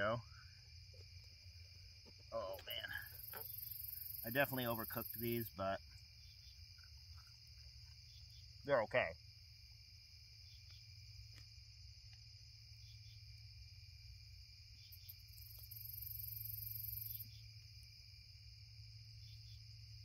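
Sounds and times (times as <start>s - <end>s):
crickets trilling: 0.0s - 20.0s
high insect buzz: 0.0s - 20.0s.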